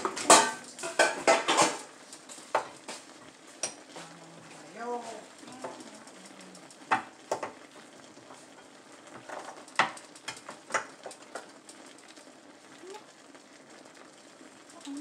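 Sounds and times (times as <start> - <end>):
broth simmering in a frying pan: 0.0 - 15.0
sharp popping: 5.3 - 12.2.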